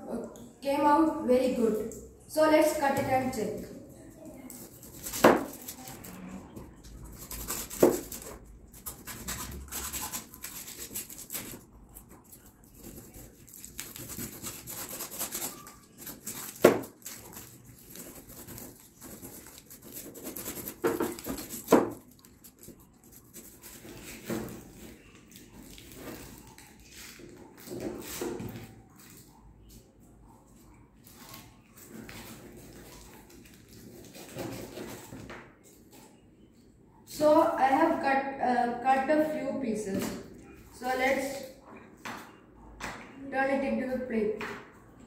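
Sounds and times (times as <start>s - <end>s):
knife sawing through foil: 7.1s - 25.0s.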